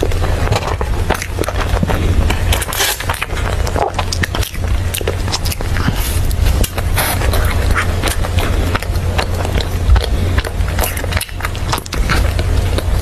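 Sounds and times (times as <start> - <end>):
biting and chewing bun: 0.0 - 13.0
low hum: 0.0 - 13.0.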